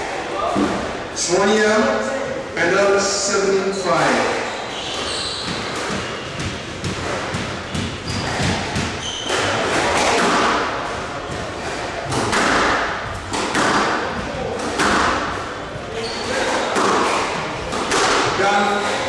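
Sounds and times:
shoes squeaking on court floor: 0:03.6 - 0:12.0, 0:14.0 - 0:19.0
squash ball thudding off walls: 0:05.4 - 0:19.0.

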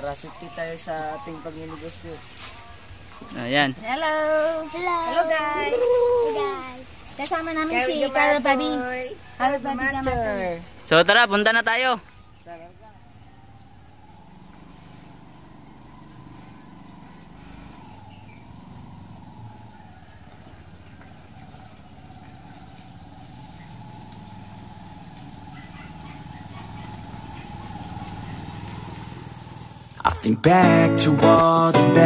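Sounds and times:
motorcycle engine running: 0:12.6 - 0:30.8.

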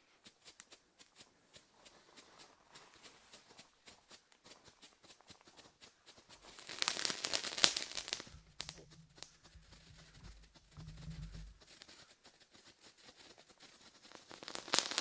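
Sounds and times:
firework crackling: 0:06.4 - 0:12.0, 0:14.0 - 0:15.0
firework pops: 0:06.6 - 0:11.6, 0:14.2 - 0:15.0.

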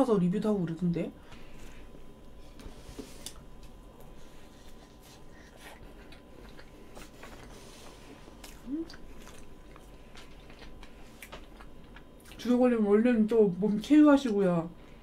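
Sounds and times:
chewing and wet mouth clicks: 0:05.7 - 0:07.5, 0:08.4 - 0:12.4
person humming: 0:08.6 - 0:09.1.

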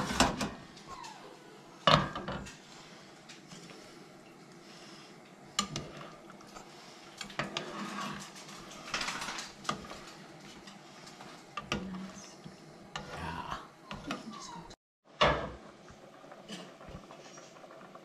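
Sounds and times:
spoon scraping pot: 0:05.6 - 0:08.8.

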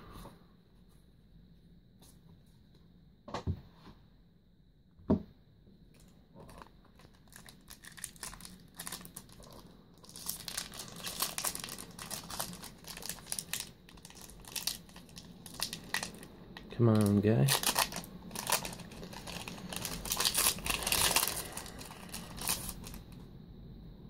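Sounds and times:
wrapper tearing open: 0:06.0 - 0:16.3, 0:17.0 - 0:23.0
foil wrapper crinkling: 0:06.0 - 0:23.2.

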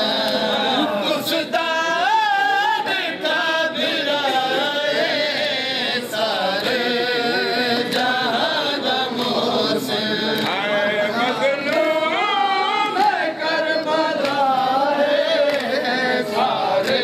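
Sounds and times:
man chanting a lament: 0:00.0 - 0:08.8
hands slapping chests: 0:14.1 - 0:14.6, 0:15.4 - 0:15.9.

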